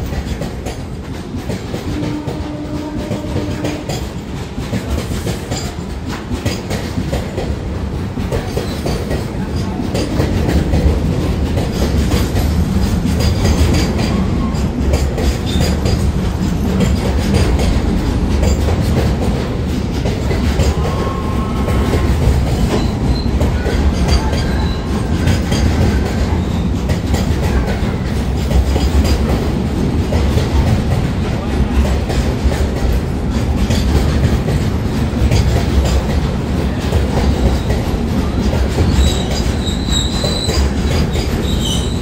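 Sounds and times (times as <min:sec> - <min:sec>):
freight train rumbling past: 0:00.0 - 0:42.0
wheels squealing: 0:38.9 - 0:42.0.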